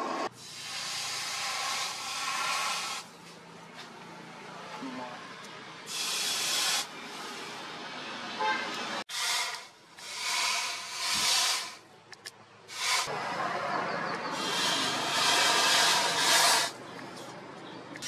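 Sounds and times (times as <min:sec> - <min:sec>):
hot blade hissing in water: 0:00.4 - 0:03.1, 0:05.9 - 0:07.6, 0:09.1 - 0:11.8, 0:12.7 - 0:13.1, 0:14.4 - 0:16.8.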